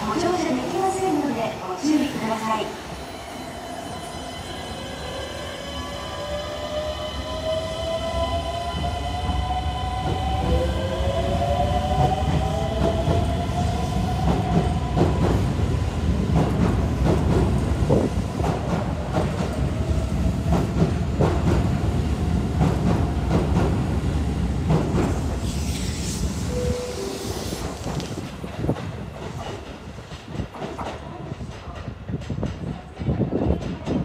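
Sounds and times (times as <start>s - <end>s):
train rumble: 8.6s - 34.0s.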